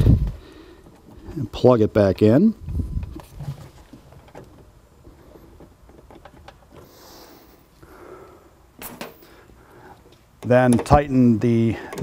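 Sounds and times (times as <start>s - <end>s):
hands rustling cable: 0.0s - 1.7s, 2.6s - 7.9s.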